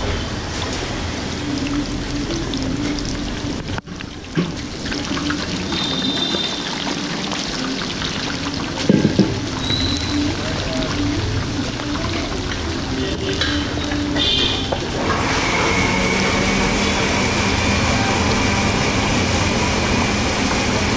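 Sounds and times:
food sizzling in hot oil: 0.2s - 20.9s.

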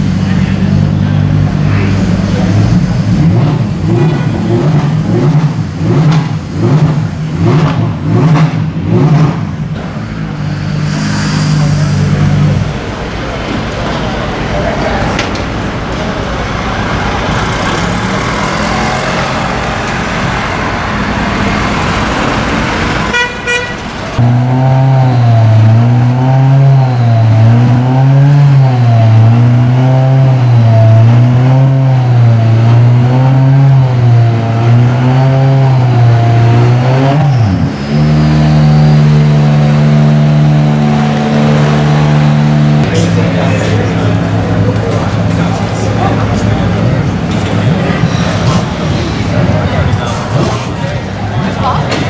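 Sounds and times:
race car engine idling: 0.0s - 24.2s, 40.6s - 52.0s
pit lane noise: 0.0s - 52.0s.

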